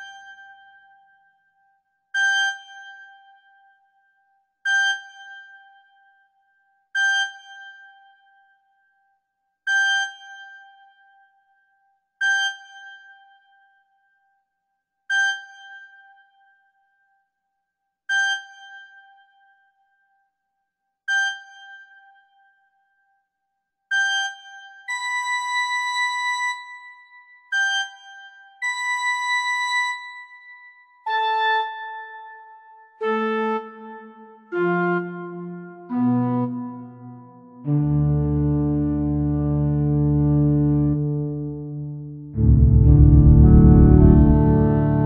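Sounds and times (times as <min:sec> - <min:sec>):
high keyboard note: 0:42.4 - 0:45.0.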